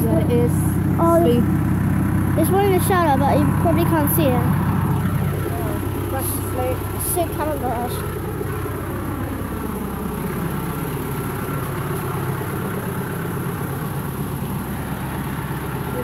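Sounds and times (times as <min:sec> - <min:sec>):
tractor engine humming: 0:00.0 - 0:16.0.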